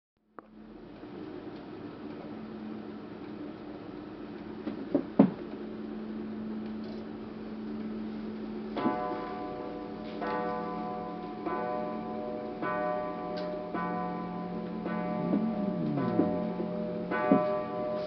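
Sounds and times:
pendulum clock striking: 0:10.3 - 0:18.0.

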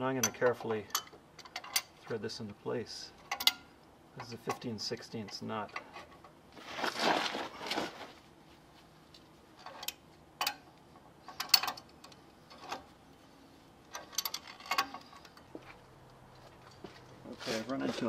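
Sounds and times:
metal scraping rustle: 0:03.1 - 0:10.6, 0:11.2 - 0:15.8, 0:16.6 - 0:18.0.

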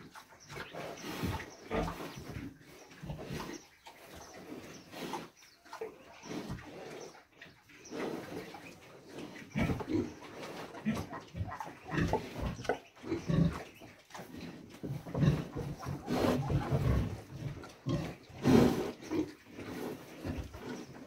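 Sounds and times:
pig grunting: 0:09.4 - 0:21.0.

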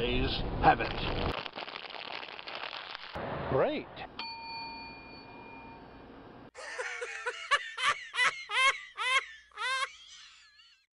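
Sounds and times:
high-pitched giggling: 0:06.6 - 0:10.9.

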